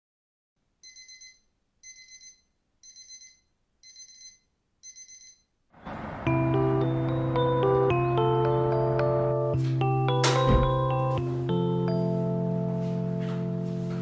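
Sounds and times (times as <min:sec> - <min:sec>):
electronic alarm beeping: 0:00.8 - 0:05.5
soft music with mallet notes: 0:06.5 - 0:14.0.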